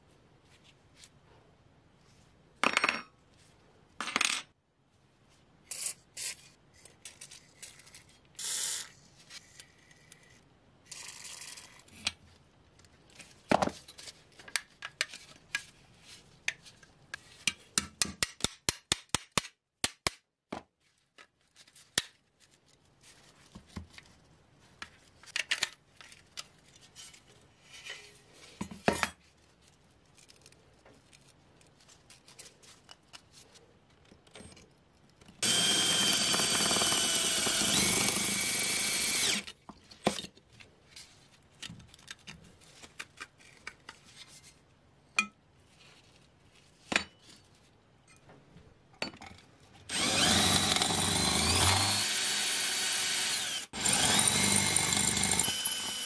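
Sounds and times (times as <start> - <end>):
electric drill running: 35.4 - 39.5, 49.9 - 56.0.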